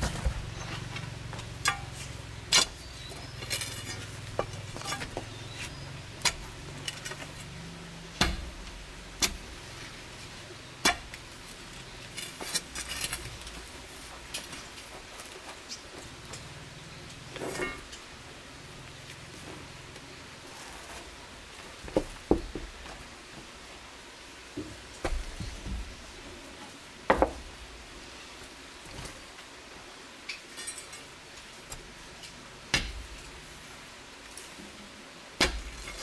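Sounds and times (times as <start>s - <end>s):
clay and stones knocking and scraping: 1.3s - 7.4s, 21.8s - 23.0s.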